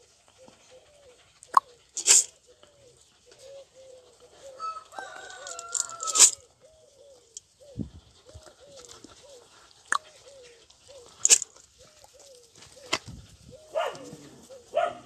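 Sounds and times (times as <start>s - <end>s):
rooster crowing: 4.6s - 6.4s.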